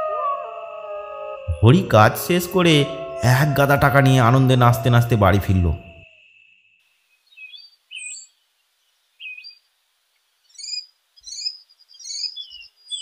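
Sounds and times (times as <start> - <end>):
bird chirping and whistling: 7.4 - 8.3, 10.6 - 13.0.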